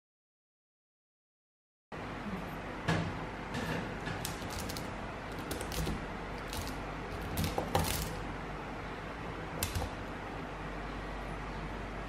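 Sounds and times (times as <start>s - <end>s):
low steady hum: 2.0s - 12.0s
magnetic balls clicking: 4.2s - 8.2s, 9.6s - 10.1s.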